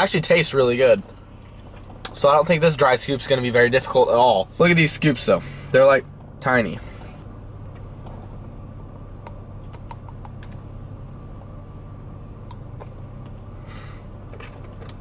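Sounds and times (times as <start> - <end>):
van engine idling: 0.0 - 15.0
breathy hiss: 13.5 - 14.2.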